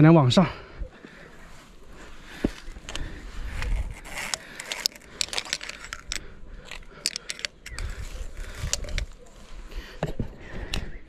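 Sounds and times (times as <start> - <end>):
scrapes: 1.4 - 10.7
iron chain clinking and rattling: 3.8 - 9.2.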